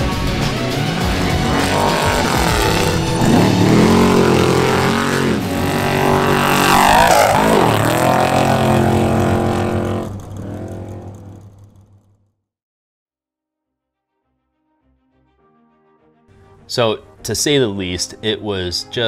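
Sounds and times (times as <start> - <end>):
race truck engines at high revs: 0.0 - 12.2.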